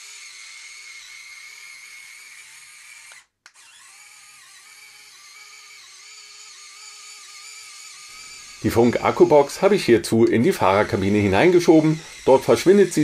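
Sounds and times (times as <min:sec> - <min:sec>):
electric motor whining: 0:00.0 - 0:13.0.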